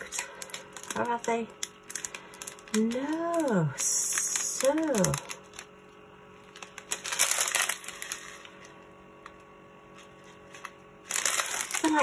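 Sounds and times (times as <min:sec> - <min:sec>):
plastic packets crinkling: 0:00.0 - 0:12.0
small gems rattling: 0:06.6 - 0:08.5, 0:11.1 - 0:12.0.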